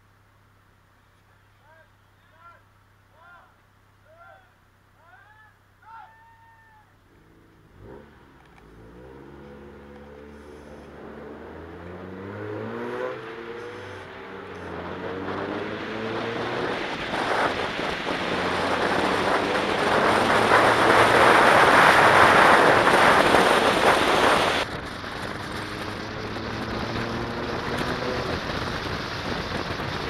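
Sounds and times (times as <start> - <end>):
car engine accelerating: 7.1 - 30.0
wind buffeting microphone: 14.7 - 30.0.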